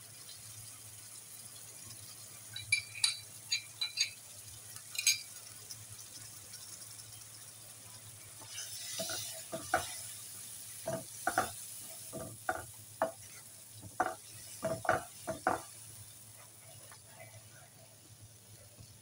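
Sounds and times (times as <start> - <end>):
sauce sizzling: 0.0 - 19.0
wooden spoon scraping a pan: 8.4 - 10.1, 10.8 - 17.6.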